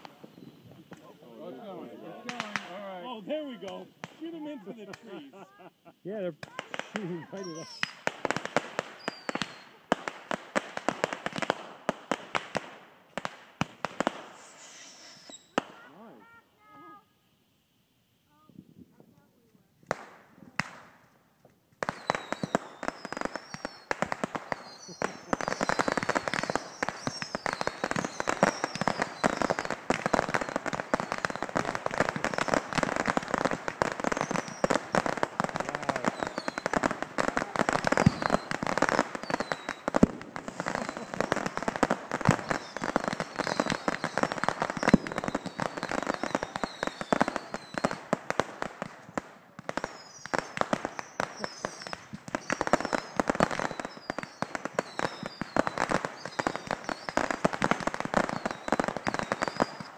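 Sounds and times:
short high whistles: 14.4s - 15.6s.

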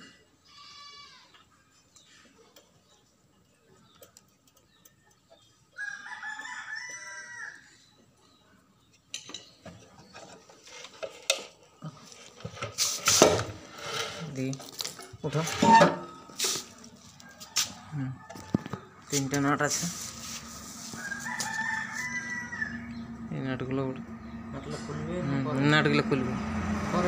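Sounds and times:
rooster crowing: 5.8s - 7.8s, 17.0s - 18.9s, 20.8s - 23.1s.

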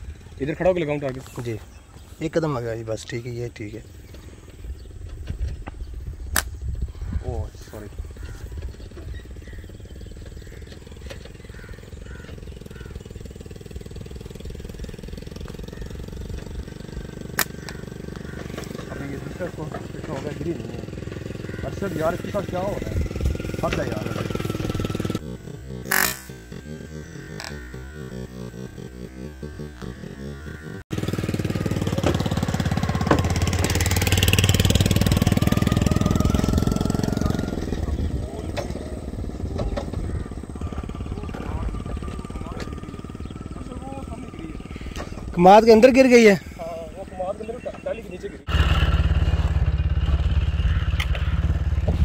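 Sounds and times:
engine running: 0.0s - 52.0s
sharp snap: 6.3s - 6.6s, 17.3s - 17.8s.

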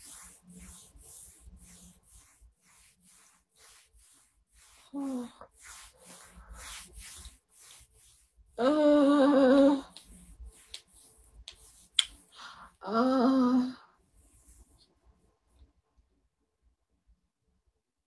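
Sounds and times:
woman humming: 8.6s - 9.9s, 12.8s - 13.8s.

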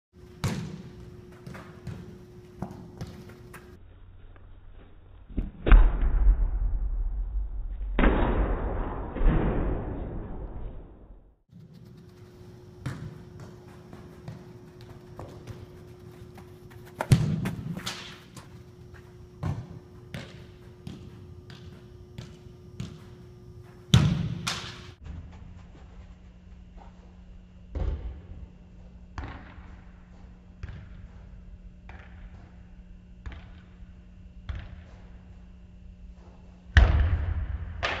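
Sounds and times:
ball kicked hard: 17.0s - 18.0s.

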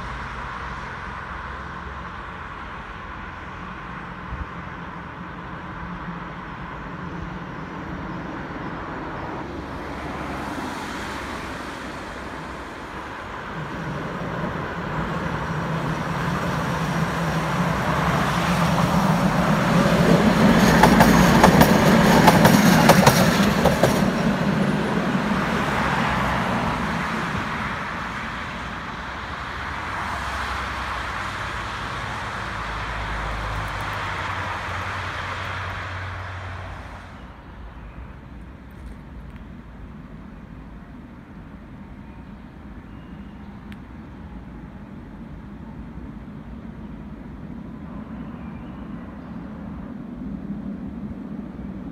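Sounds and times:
road traffic: 0.0s - 51.9s
tram passing: 0.0s - 51.9s
wheels clicking over rail joints: 15.5s - 25.0s.

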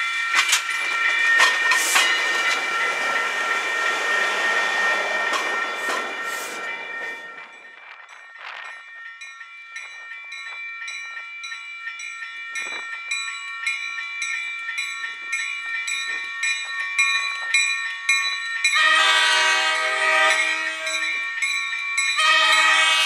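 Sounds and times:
railroad crossing bell ringing: 0.0s - 23.0s
train air horn: 18.8s - 21.1s, 22.2s - 23.0s.

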